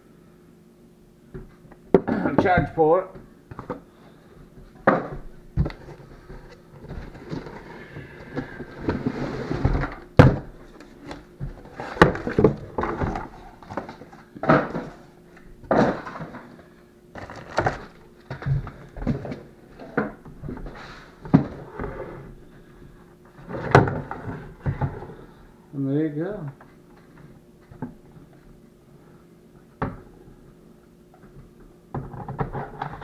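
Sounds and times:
cardboard packaging rustling: 0:05.6 - 0:15.1, 0:17.2 - 0:19.8.

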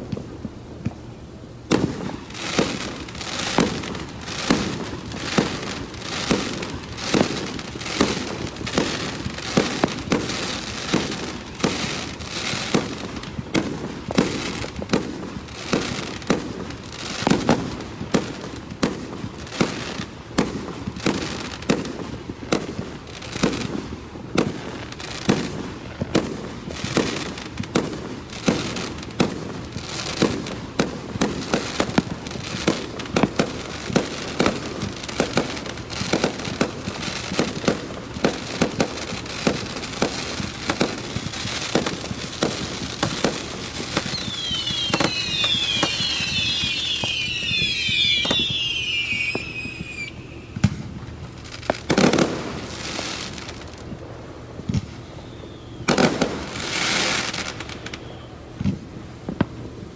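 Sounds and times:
fireworks bursting: 0:00.0 - 0:59.9.

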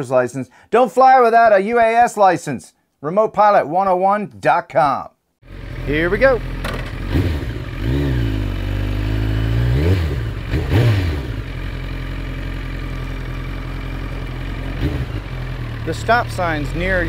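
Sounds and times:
motorcycle engine revving: 0:05.4 - 0:17.0.

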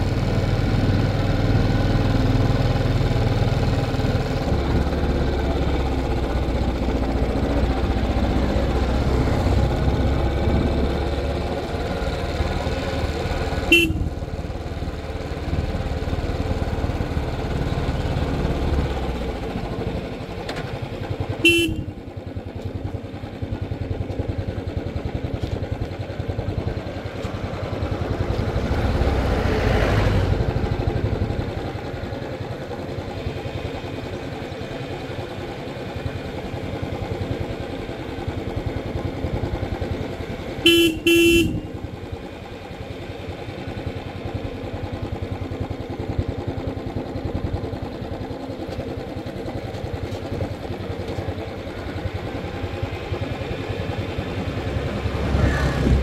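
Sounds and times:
motorcycle engine running: 0:00.0 - 0:56.0
horn toots: 0:13.7 - 0:14.1, 0:21.4 - 0:21.9, 0:40.6 - 0:41.8.

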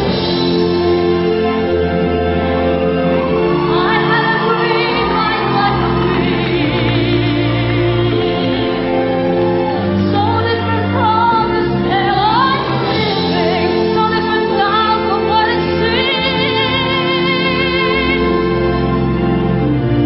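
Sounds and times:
instrumental accompaniment: 0:00.0 - 0:20.0
woman singing with vibrato: 0:03.3 - 0:18.6.

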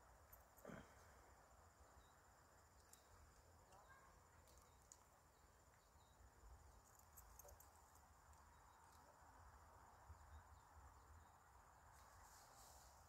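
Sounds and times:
faint insect trill: 0:00.0 - 0:13.0
faint clicks: 0:02.7 - 0:05.1.

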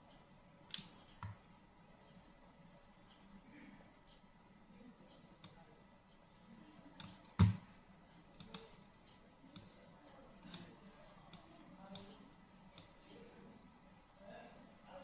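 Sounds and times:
computer mouse clicks: 0:00.7 - 0:01.4, 0:07.0 - 0:07.6, 0:08.4 - 0:09.8, 0:10.4 - 0:13.0.

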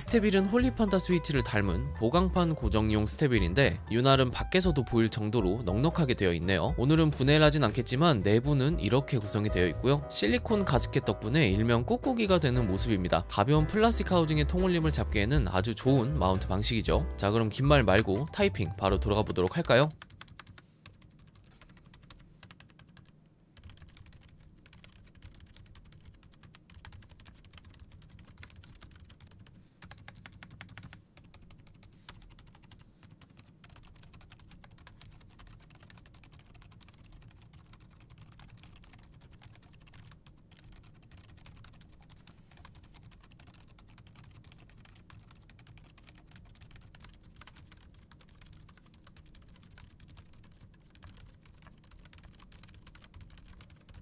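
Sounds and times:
soft keyboard typing: 0:03.9 - 0:11.2, 0:17.4 - 0:54.0
fingers rubbing on keycaps: 0:19.3 - 0:54.0.

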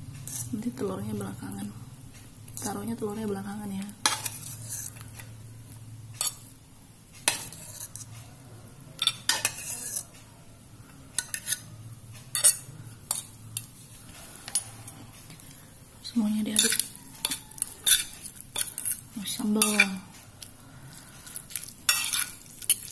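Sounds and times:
utensils clinking on plate: 0:07.2 - 0:08.1, 0:09.0 - 0:10.1, 0:12.3 - 0:15.4, 0:16.6 - 0:22.9.

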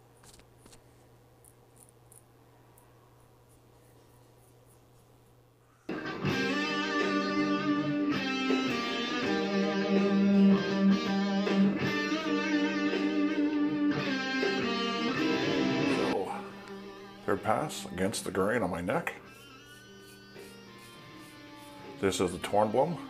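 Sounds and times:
electric guitar playing: 0:05.9 - 0:18.2
recorded backing track: 0:05.9 - 0:19.3.

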